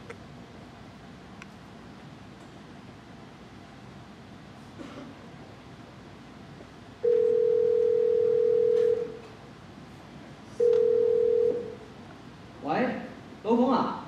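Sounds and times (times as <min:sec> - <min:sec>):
telephone ringback beep: 0:07.0 - 0:09.2, 0:10.6 - 0:11.7.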